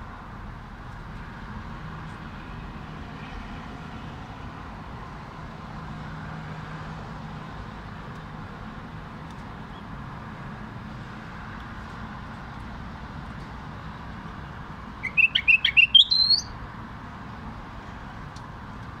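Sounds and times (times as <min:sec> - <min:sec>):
bulbul singing bright notes: 0:15.0 - 0:16.5.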